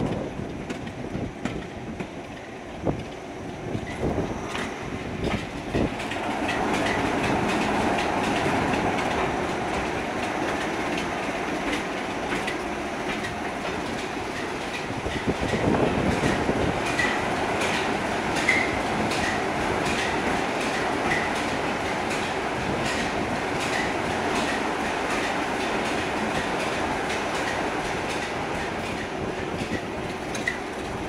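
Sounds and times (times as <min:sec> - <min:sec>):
diesel locomotive engine: 0:00.0 - 0:31.0
wheels clicking over rail joints: 0:00.0 - 0:31.0.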